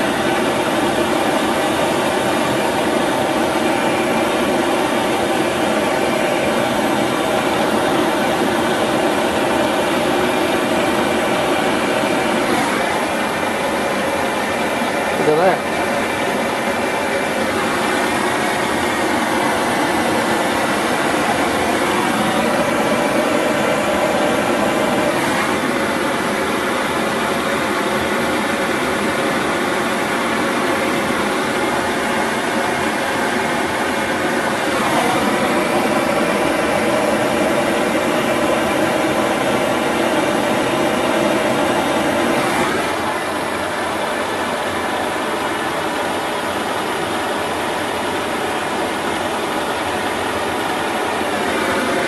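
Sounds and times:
engine mechanical whir: 0:00.0 - 0:52.0.

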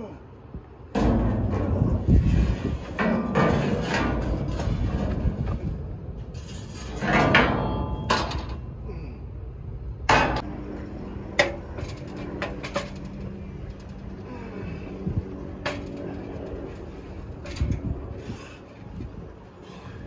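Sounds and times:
angle iron clanking: 0:00.9 - 0:08.9, 0:10.0 - 0:14.6.

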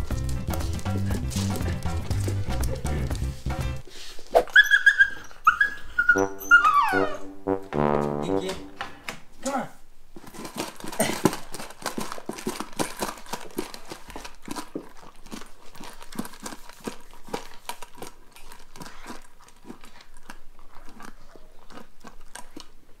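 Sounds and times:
puppy crunching food from bowl: 0:00.0 - 0:03.4, 0:10.2 - 0:23.0.

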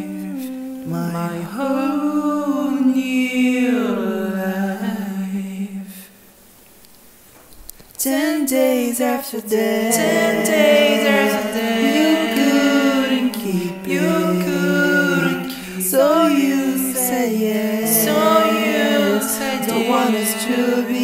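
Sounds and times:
person singing love song: 0:00.0 - 0:06.1, 0:08.0 - 0:21.0
acoustic music with held low note: 0:08.0 - 0:21.0.

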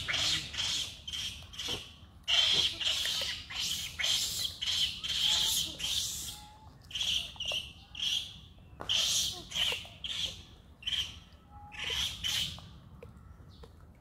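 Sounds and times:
baby monkey squealing cries: 0:00.0 - 0:07.4, 0:08.9 - 0:11.1, 0:11.7 - 0:12.5.

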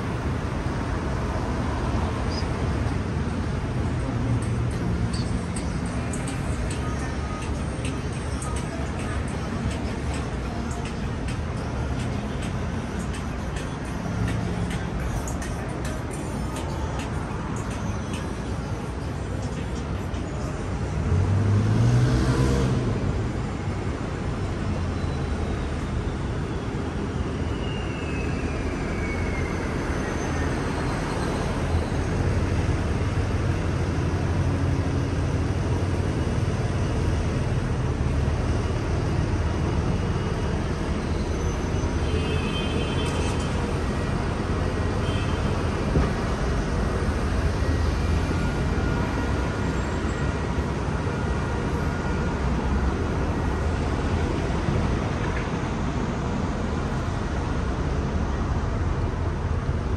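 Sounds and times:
passing cars rumble: 0:00.0 - 0:27.6.

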